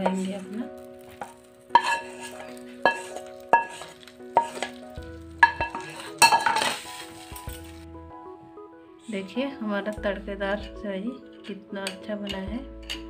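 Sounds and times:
wooden spatula scraping a pan: 0.0s - 7.9s
hot ghee sizzling: 0.0s - 8.1s.

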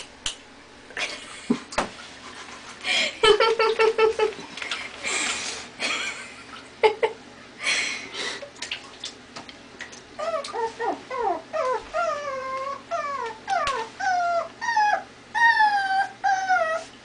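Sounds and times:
puppy whimpering: 10.2s - 17.0s.

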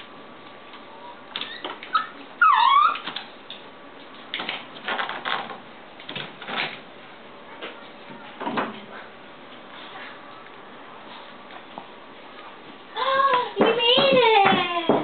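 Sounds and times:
dog whining: 1.4s - 3.1s.

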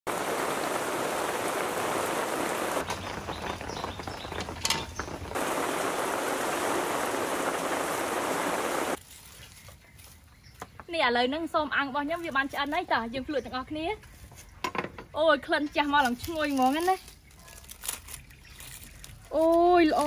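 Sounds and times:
heavy rain: 0.0s - 9.0s.

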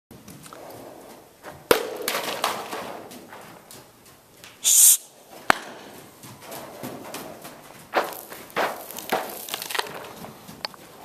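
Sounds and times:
hoofbeats in dirt: 0.1s - 11.0s
sharp cracks: 4.4s - 5.9s
short loud hiss: 4.6s - 5.1s.

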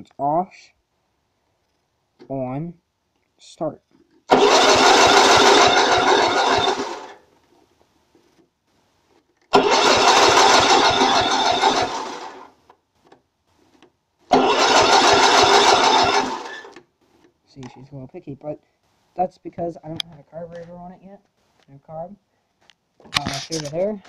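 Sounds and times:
electric starter cranking engine: 4.3s - 7.2s, 9.5s - 12.5s, 14.3s - 16.8s.

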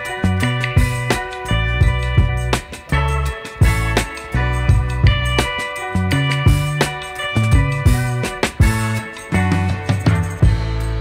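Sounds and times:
bass line: 0.0s - 11.0s
drums: 0.0s - 11.0s.

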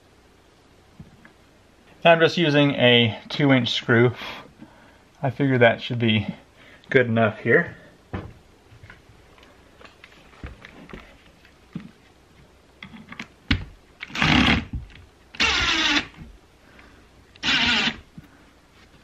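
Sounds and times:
cordless driver sinking screw into wood: 15.4s - 16.2s, 17.4s - 18.0s.

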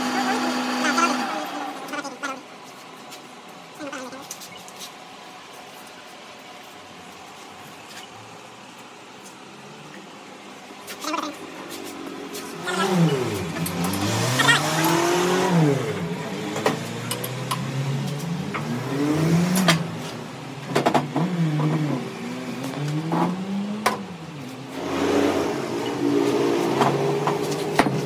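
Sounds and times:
engine revving: 0.0s - 2.1s, 11.1s - 28.0s.

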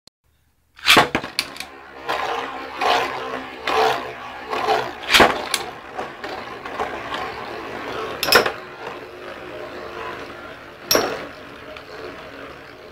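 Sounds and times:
spinning tops whirring on plastic: 0.8s - 12.9s
spinning tops clacking together: 8.2s - 8.6s, 10.8s - 11.3s.

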